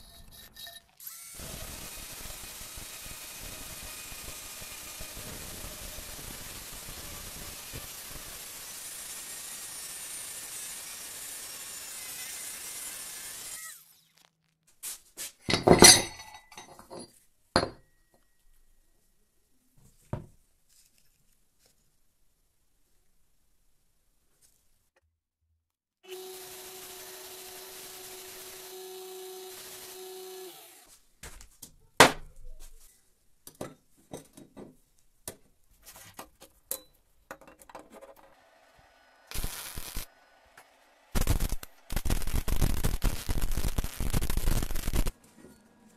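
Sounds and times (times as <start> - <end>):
angle grinder cutting steel: 0.0 - 14.1, 26.1 - 30.9, 38.3 - 45.1
metal clinks and knocks: 15.4 - 18.2.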